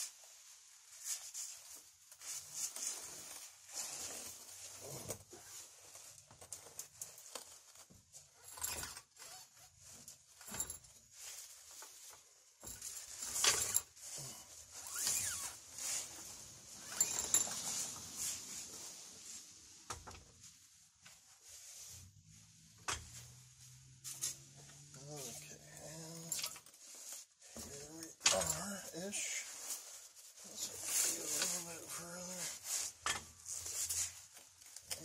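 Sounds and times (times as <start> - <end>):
metal scraping and clinking: 12.6 - 18.6.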